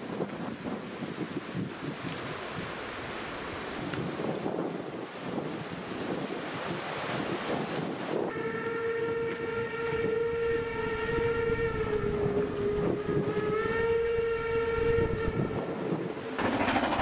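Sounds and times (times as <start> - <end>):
steam locomotive whistle: 8.3 - 15.6.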